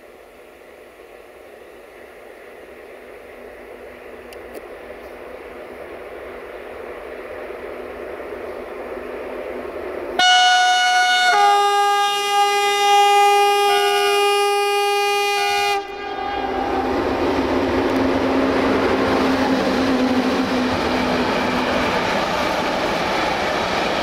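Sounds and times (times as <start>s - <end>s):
freight train wheels rumbling: 0.0s - 24.0s
locomotive horn blast: 10.2s - 17.0s.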